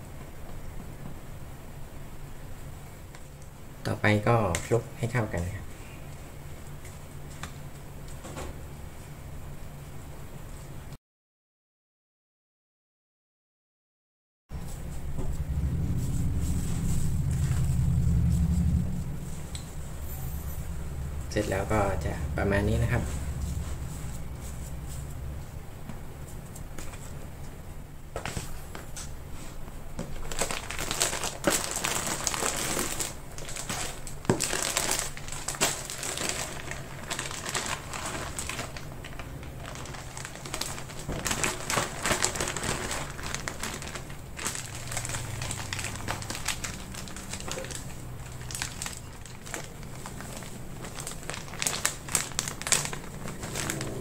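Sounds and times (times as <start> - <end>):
plastic bags crinkling: 30.0 - 54.0.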